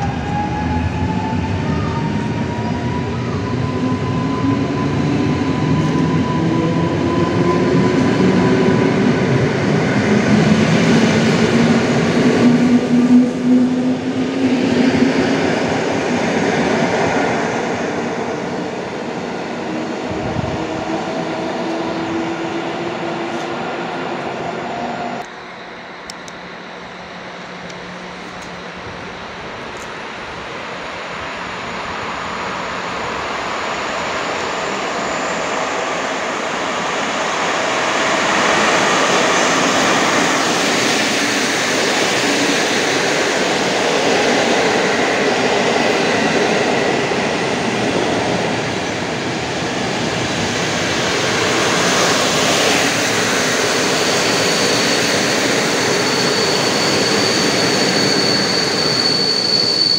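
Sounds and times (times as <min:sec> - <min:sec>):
passenger train rolling past: 0:00.0 - 0:59.9
high wheel squeal: 0:31.3 - 0:36.3, 0:51.7 - 0:59.9.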